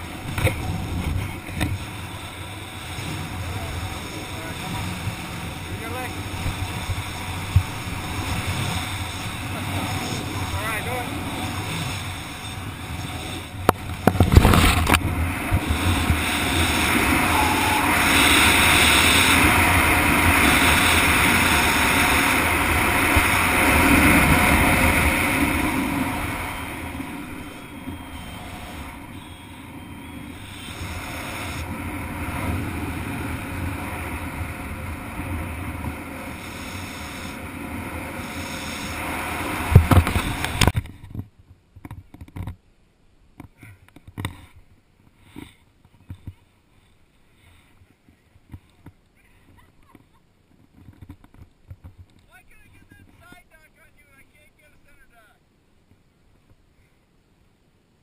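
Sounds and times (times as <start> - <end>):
wind rushing over microphone: 0.0 - 42.5.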